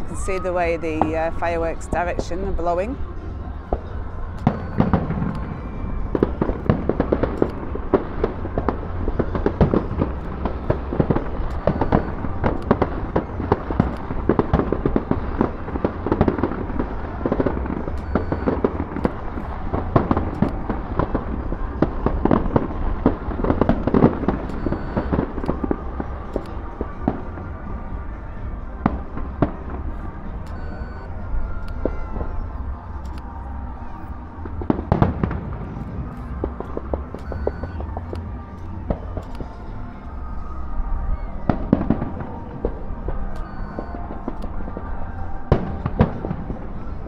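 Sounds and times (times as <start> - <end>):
fireworks bangs: 0.0 - 47.0
steady low rumble: 0.0 - 47.0.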